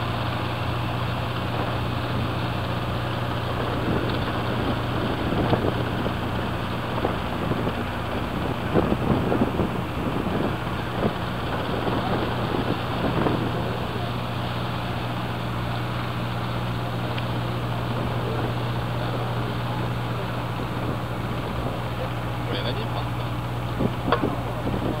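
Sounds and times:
boat engine humming: 0.0 - 25.0
wind and water rushing: 0.0 - 25.0.

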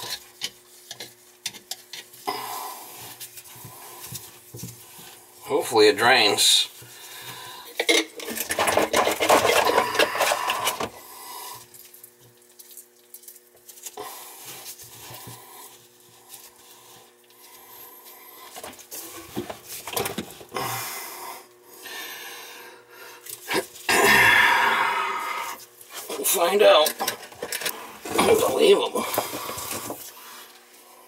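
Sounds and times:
plastic pipes rubbing and scraping: 0.0 - 2.3, 2.9 - 11.0, 18.4 - 20.5, 25.6 - 30.7.

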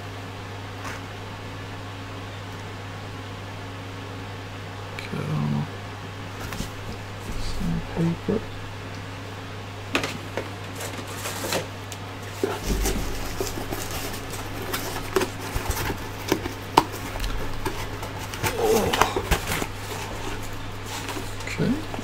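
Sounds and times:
cardboard box being handled: 10.6 - 22.0.

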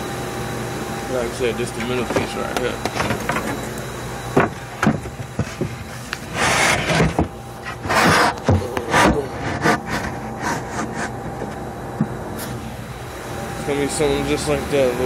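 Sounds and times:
scraping rubs on wood: 5.4 - 11.6.

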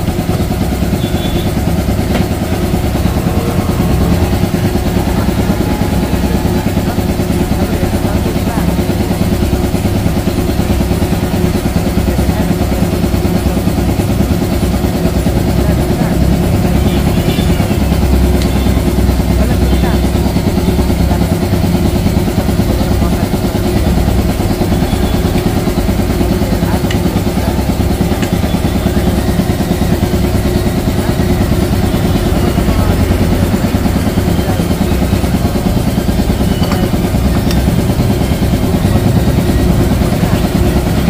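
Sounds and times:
motor engine running: 0.0 - 41.0.

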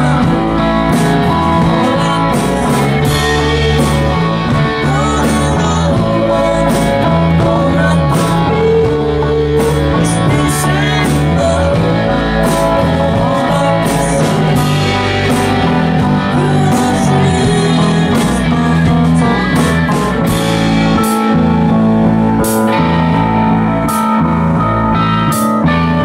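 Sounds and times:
drum kit: 0.0 - 26.0
electric bass guitar: 0.0 - 26.0
keyboard: 0.0 - 26.0.

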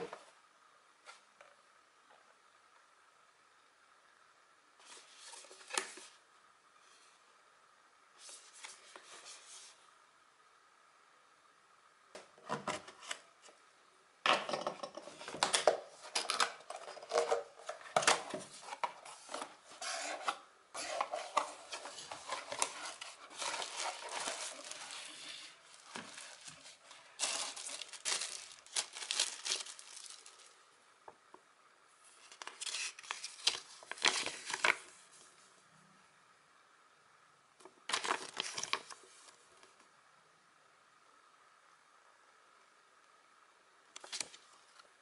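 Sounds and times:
plastic wrap rustling: 16.0 - 30.7, 32.2 - 35.0, 37.9 - 39.0
paper crinkling: 16.1 - 30.6, 32.2 - 35.0, 37.9 - 39.3.

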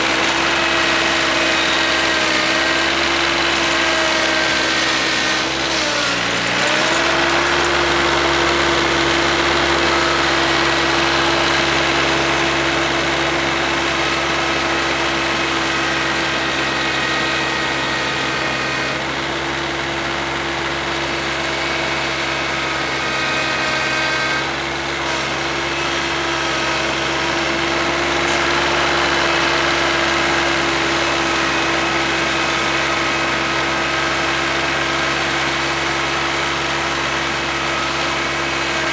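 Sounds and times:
snowblower throwing snow: 0.0 - 20.6
diesel tractor engine running: 0.0 - 38.9.

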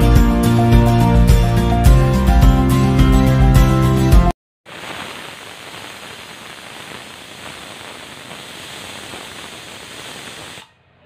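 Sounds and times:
pressure cooker hissing: 4.7 - 10.6.

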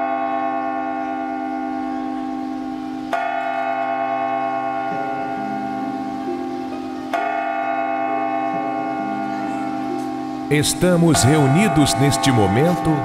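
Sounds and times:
church bell tolling: 0.0 - 13.0
lower bell tone: 0.0 - 13.0.

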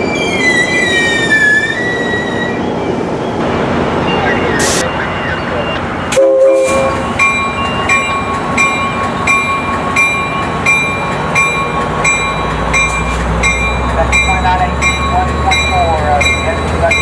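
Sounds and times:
low train rumble: 0.0 - 17.0
railroad bell ringing: 4.0 - 17.0.

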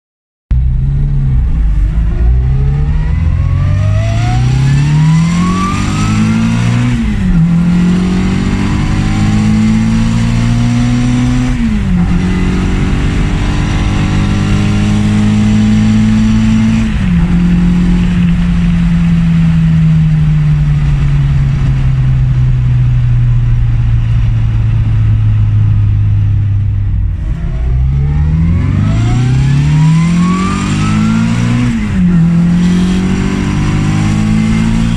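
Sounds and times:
car engine revving through gears: 0.7 - 20.0, 26.9 - 34.9.

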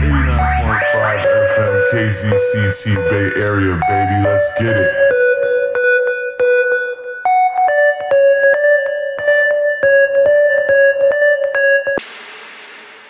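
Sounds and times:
synth keyboard dance melody: 0.0 - 12.0.

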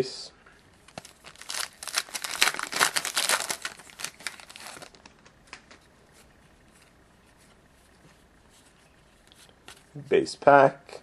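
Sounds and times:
wrapper tearing and crinkling: 0.8 - 5.2.

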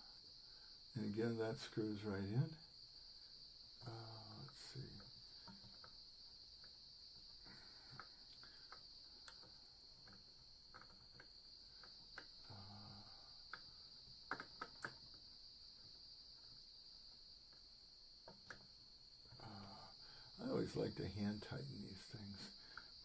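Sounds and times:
small metal clicks and taps: 14.3 - 15.2.

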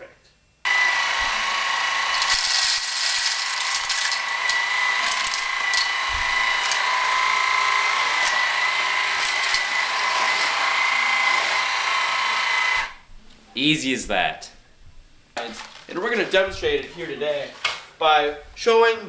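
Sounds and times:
electric sweeper motor whine: 0.7 - 13.0.

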